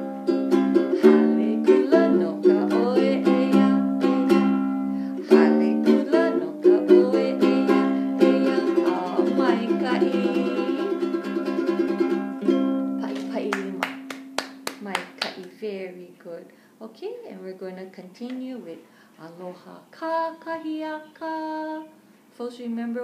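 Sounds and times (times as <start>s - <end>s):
ukulele strumming chords: 0.0s - 15.1s
woman singing: 0.7s - 4.5s, 5.1s - 11.8s, 13.0s - 14.1s, 18.0s - 23.0s.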